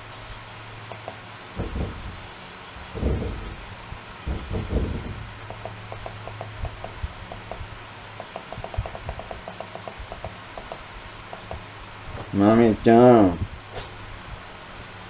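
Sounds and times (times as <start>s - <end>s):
dog sniffing: 13.7s - 14.0s.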